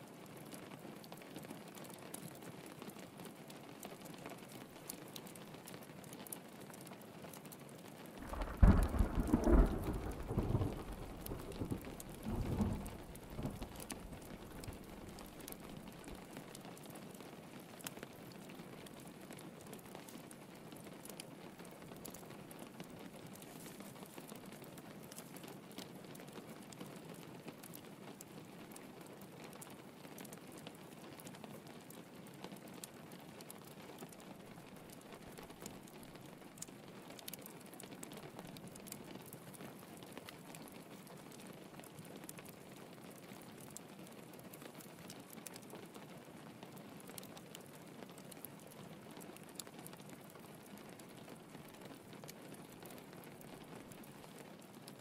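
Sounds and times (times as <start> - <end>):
rain pattering on window: 0.0 - 55.0
thunder rumbling: 8.2 - 15.8.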